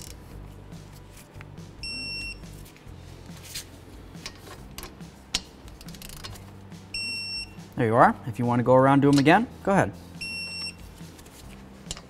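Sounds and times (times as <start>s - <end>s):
electronic beep: 1.8s - 2.4s
metal tools clicking: 4.2s - 6.4s.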